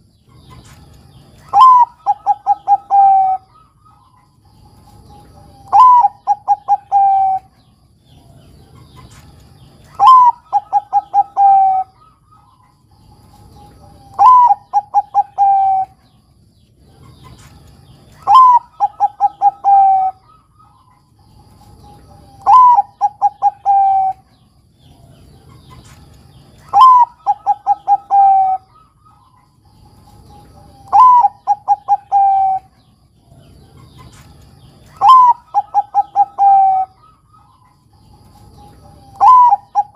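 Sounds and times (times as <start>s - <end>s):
dove cooing: 1.4s - 9.3s, 9.9s - 16.2s, 16.8s - 39.9s.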